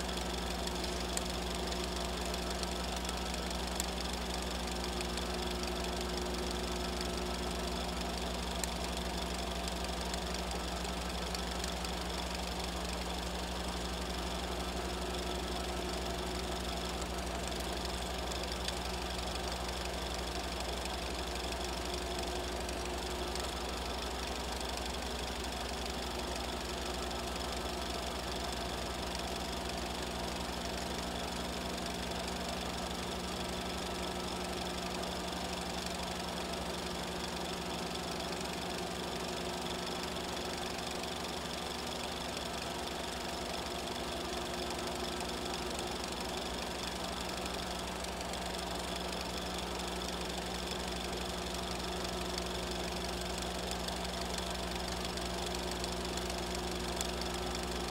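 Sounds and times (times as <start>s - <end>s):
small machine knocking: 0.0s - 57.9s.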